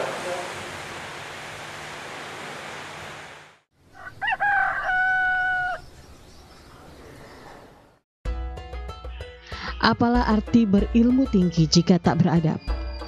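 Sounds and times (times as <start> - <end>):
rooster crowing: 3.9 - 5.9.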